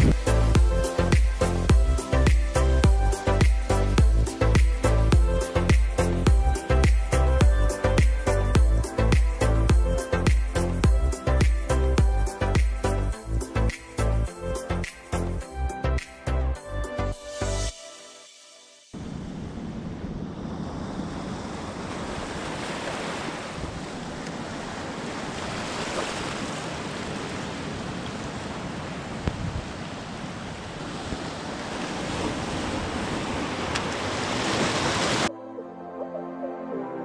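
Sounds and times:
wind buffeting microphone: 0:00.0 - 0:00.3, 0:19.0 - 0:35.3
sea surf washing over reef: 0:19.0 - 0:35.3.

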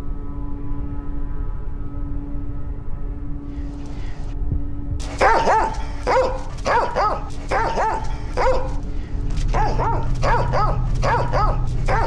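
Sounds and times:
low steady hum: 0:00.0 - 0:12.0
dog yapping: 0:05.0 - 0:08.8, 0:09.4 - 0:12.0.

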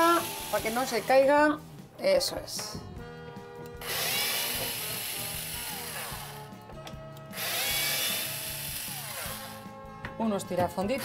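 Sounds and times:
cordless screwdriver running: 0:03.8 - 0:06.5, 0:07.3 - 0:09.6.

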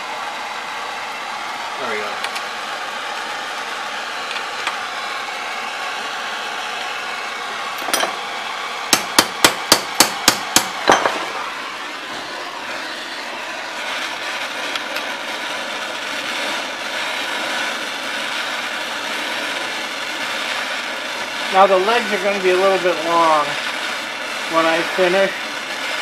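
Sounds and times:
torch flame hissing: 0:00.0 - 0:26.0
hammer striking steel rod: 0:08.9 - 0:11.3.

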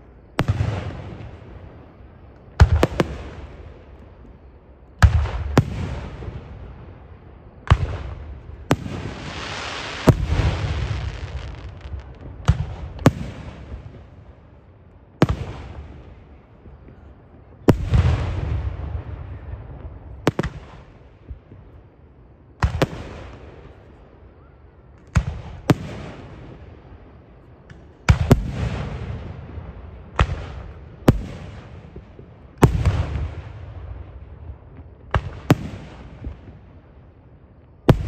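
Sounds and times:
fireworks bangs: 0:02.6 - 0:06.6, 0:07.6 - 0:14.4.

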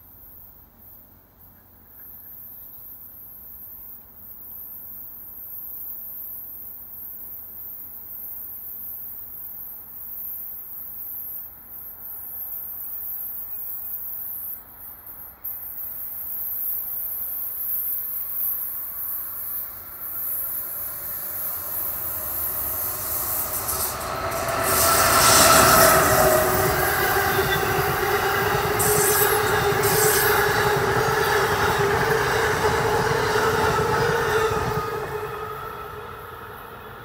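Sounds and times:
passenger train passing: 0:17.9 - 0:37.0.

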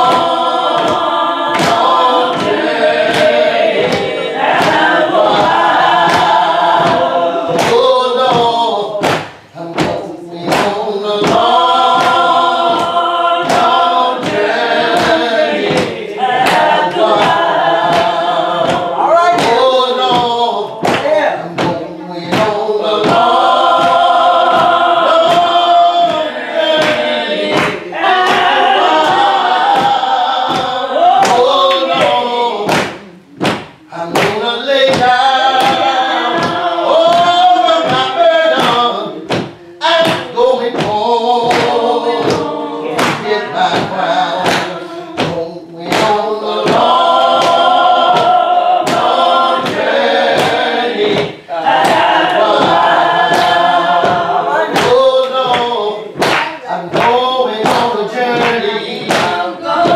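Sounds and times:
sharp knocks keeping time: 0:00.0 - 0:59.9
voices singing gospel: 0:00.0 - 0:59.9.

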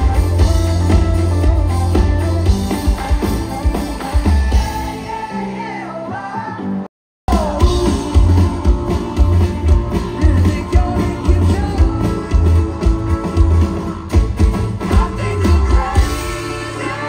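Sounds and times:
loud live concert music: 0:00.0 - 0:17.0.

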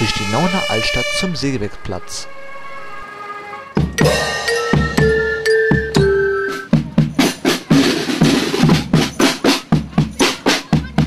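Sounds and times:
marching band held notes: 0:00.0 - 0:11.0
snare and bass drum beat: 0:03.8 - 0:11.0.

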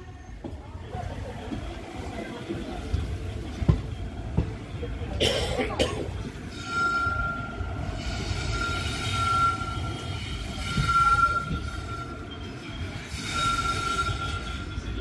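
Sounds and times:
train wheels rumbling on rails: 0:00.0 - 0:15.0
high-pitched wheel squeal: 0:06.5 - 0:15.0.

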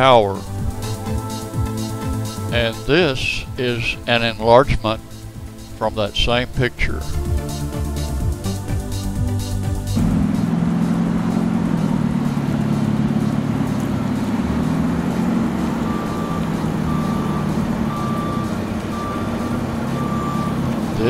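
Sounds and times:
low motor hum: 0:00.0 - 0:03.6, 0:07.0 - 0:21.0
vehicle reversing alarm beeping: 0:12.0 - 0:21.0.

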